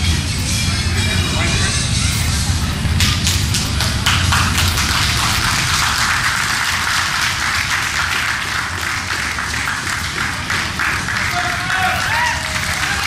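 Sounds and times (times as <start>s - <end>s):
spectators clapping: 2.9s - 13.0s.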